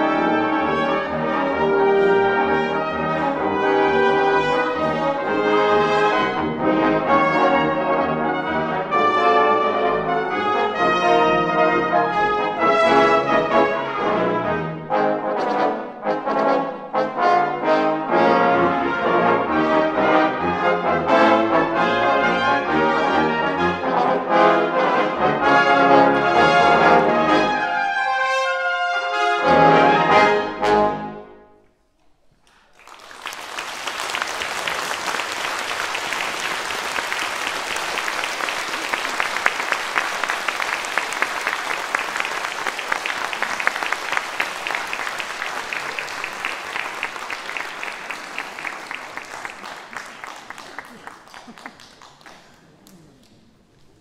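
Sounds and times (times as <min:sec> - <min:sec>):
brass ensemble playing: 0:00.0 - 0:31.6
audience applause: 0:32.4 - 0:54.0.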